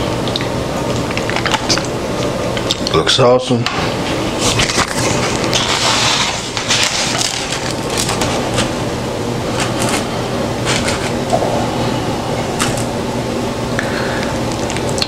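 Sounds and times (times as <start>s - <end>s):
steady low hum: 0.0s - 15.0s
foam plate crackling and creaking: 4.5s - 8.8s.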